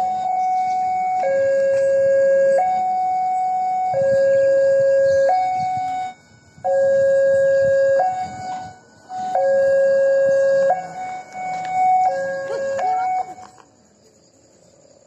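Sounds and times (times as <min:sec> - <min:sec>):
two-tone level crossing alarm: 0:00.0 - 0:13.6.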